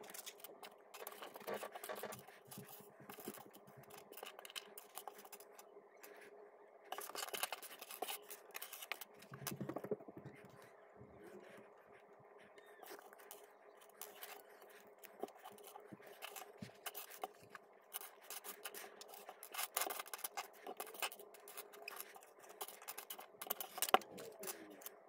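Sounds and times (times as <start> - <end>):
faint steady hum: 0.0 - 25.0
hands rustling plastic pieces: 14.0 - 25.0.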